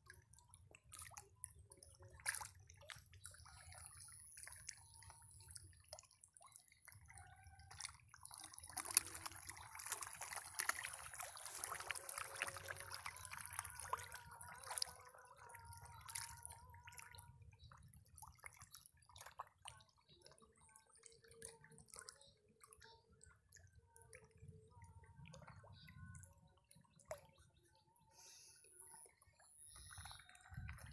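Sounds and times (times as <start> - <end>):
fish splashing at water surface: 2.1 - 17.1.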